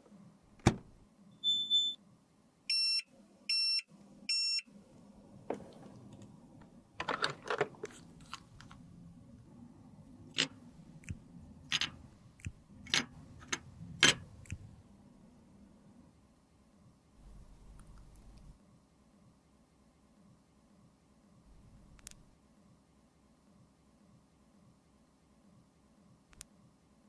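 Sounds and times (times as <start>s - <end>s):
fridge control panel beeps: 1.3s - 2.0s, 2.7s - 4.6s.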